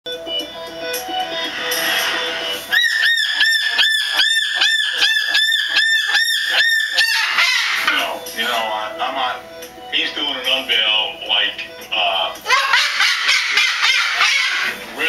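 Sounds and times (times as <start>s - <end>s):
cockatoo calling: 2.7s - 8.2s, 12.4s - 14.9s.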